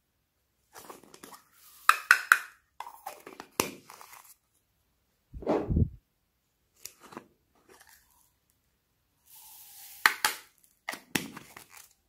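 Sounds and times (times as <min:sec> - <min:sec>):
foam beads pouring into glass dish: 0:09.3 - 0:10.0.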